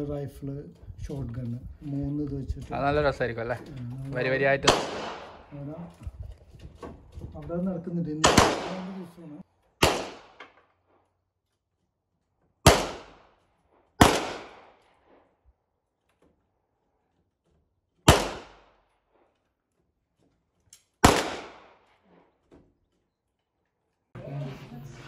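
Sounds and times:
gunshots echoing: 4.5s - 5.7s, 8.1s - 9.2s, 9.8s - 10.5s, 12.6s - 13.3s, 14.0s - 15.2s, 18.1s - 18.8s, 21.0s - 21.9s.

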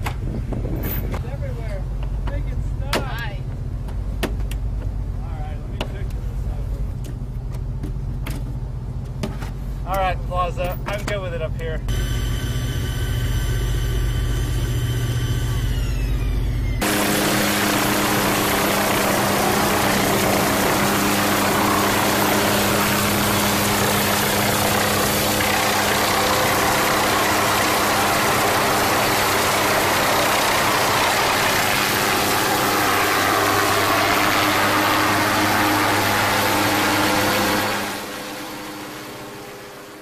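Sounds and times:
helicopter engine and rotor: 11.9s - 40.0s.

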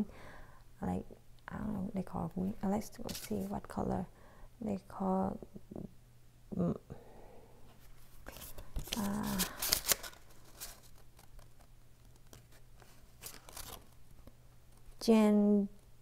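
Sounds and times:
packaging rustling and crinkling: 8.1s - 14.3s.

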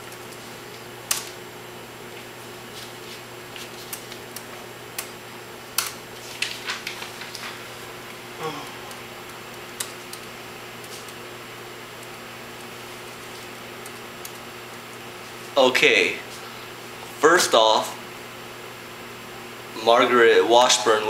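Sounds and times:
faint room hum: 0.0s - 21.0s
laptop keyboard typing: 8.9s - 11.2s, 12.0s - 14.5s.

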